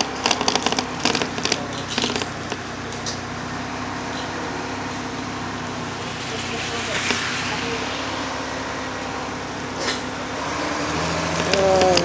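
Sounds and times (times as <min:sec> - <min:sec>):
road noise inside vehicle: 0:00.0 - 0:12.0
vehicle engine hum: 0:00.0 - 0:12.0
sharp hissing clicks: 0:05.9 - 0:09.0.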